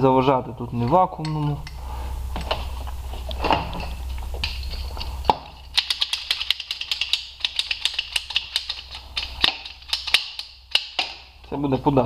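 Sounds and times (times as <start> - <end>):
low hum: 0.0 - 12.0
metal parts clicking and clinking: 3.4 - 11.3.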